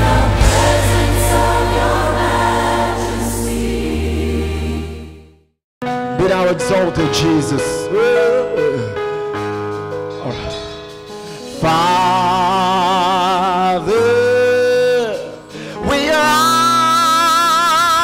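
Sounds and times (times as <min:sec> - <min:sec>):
electronic keyboard chords: 0:00.0 - 0:05.1
man singing into a microphone: 0:06.2 - 0:09.0, 0:11.6 - 0:18.0.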